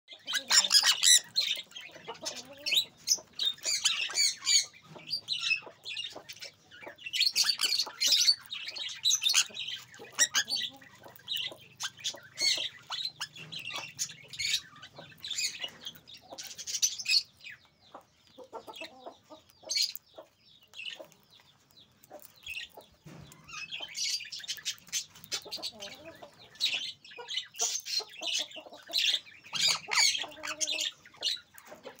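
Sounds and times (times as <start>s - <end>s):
parrots squawking: 0.1s - 4.8s, 7.1s - 17.3s, 23.7s - 31.4s
beaks cracking seeds: 19.4s - 26.0s.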